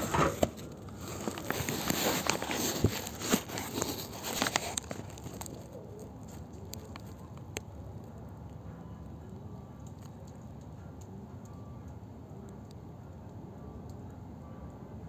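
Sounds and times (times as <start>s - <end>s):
phone rustling against wire mesh: 0.0s - 5.6s.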